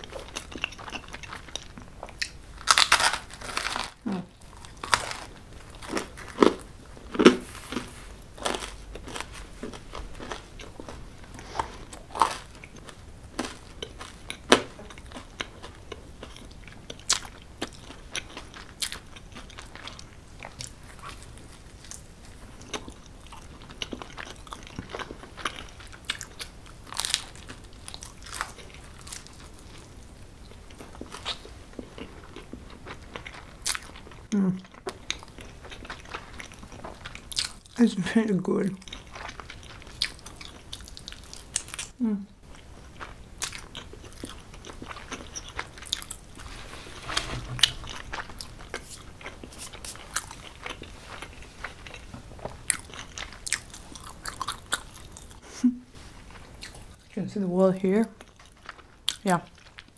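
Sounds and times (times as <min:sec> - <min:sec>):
pizza crunching: 0:00.0 - 0:34.2, 0:42.6 - 0:55.3
person chewing: 0:00.0 - 0:37.8, 0:38.8 - 0:57.0, 0:58.2 - 0:59.9.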